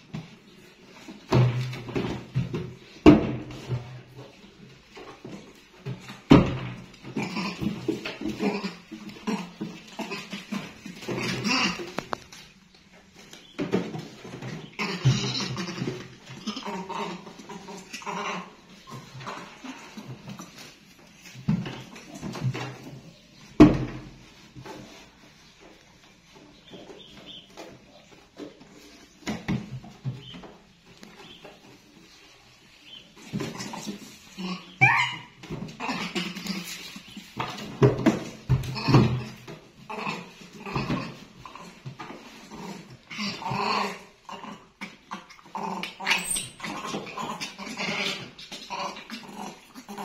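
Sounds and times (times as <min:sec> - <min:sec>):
monkeys squeaking: 0:34.4 - 0:36.0, 0:46.0 - 0:50.0
monkey whimpering squeals: 0:34.8 - 0:35.4.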